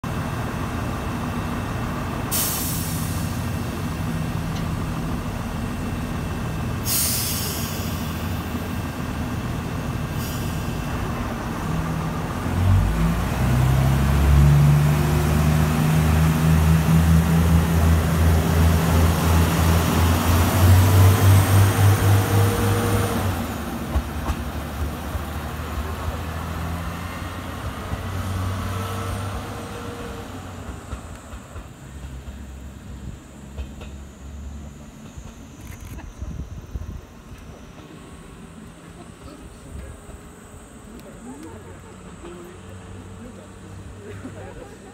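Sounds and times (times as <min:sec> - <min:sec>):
air brake hisses: 0:02.3 - 0:03.4, 0:06.8 - 0:08.4, 0:10.1 - 0:10.8
diesel engine revving: 0:05.0 - 0:23.9, 0:24.6 - 0:30.6.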